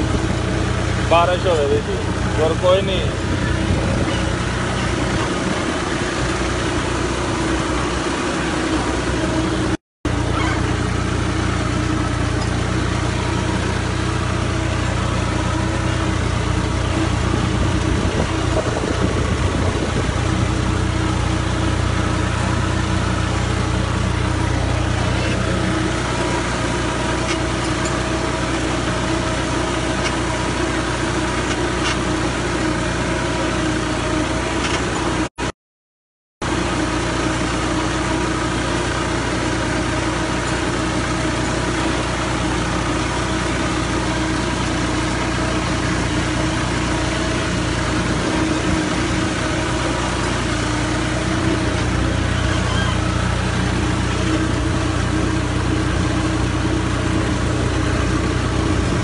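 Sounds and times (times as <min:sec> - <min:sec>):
tractor diesel engine running: 0:00.0 - 0:35.5, 0:36.4 - 0:59.0.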